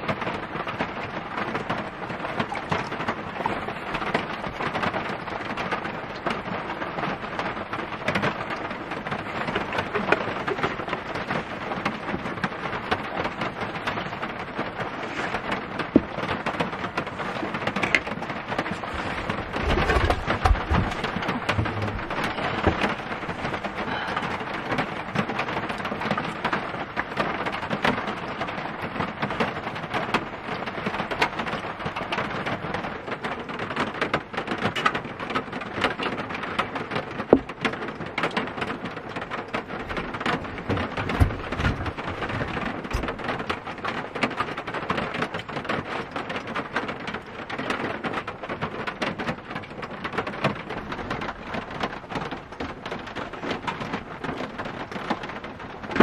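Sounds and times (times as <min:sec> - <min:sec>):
heavy rain on a van roof: 0:00.0 - 0:56.0
deep thumps: 0:18.8 - 0:23.8, 0:40.7 - 0:43.2.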